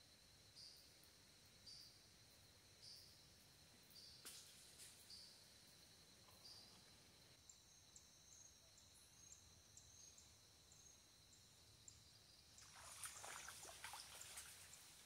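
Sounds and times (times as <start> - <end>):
rustle of leaves and branches: 12.6 - 15.0.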